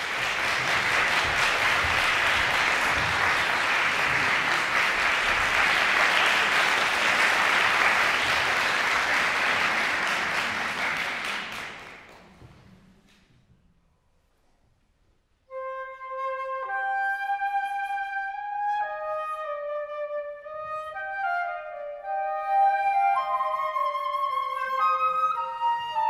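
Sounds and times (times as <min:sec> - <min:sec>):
audience applause: 0:00.0 - 0:12.5.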